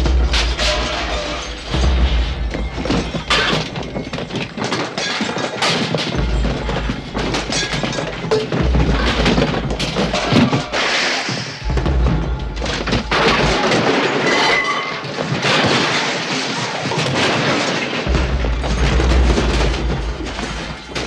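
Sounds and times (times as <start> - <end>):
objects crashing and breaking: 0.0 - 21.0
music playing: 5.6 - 14.0.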